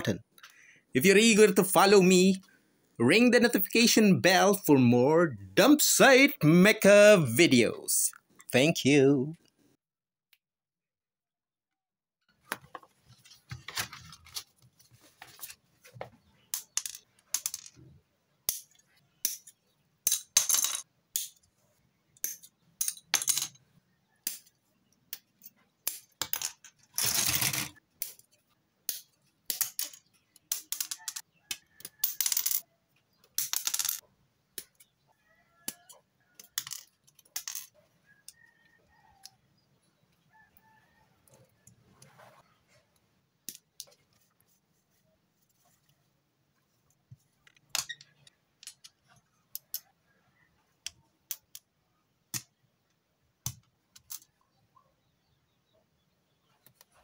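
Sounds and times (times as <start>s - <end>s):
plastic parts and tools clattering: 12.4s - 21.5s, 22.2s - 23.7s, 25.2s - 32.6s, 35.9s - 38.4s, 47.4s - 49.8s.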